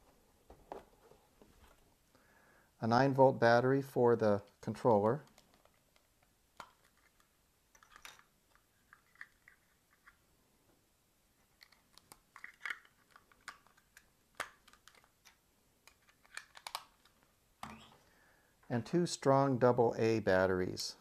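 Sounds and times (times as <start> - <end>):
small objects clicking and rustling: 5.2 - 10.2, 11.4 - 17.8.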